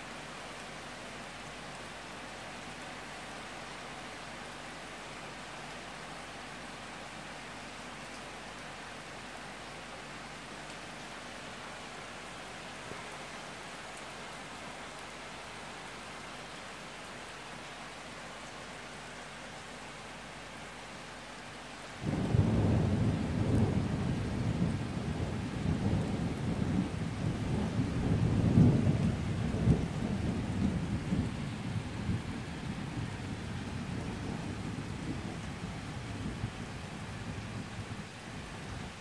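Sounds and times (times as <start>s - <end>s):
steady rain: 0.0s - 39.0s
thunder clap and rumble: 22.0s - 37.8s.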